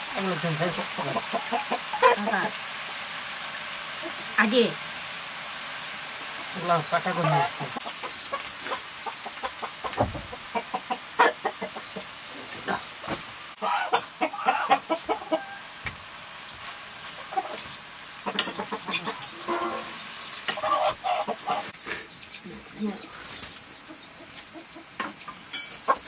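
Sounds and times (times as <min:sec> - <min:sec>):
chicken clucking: 0:00.6 - 0:02.6, 0:06.2 - 0:12.9, 0:13.6 - 0:15.7, 0:16.6 - 0:26.0
ladle scraping in wok: 0:18.4 - 0:20.6.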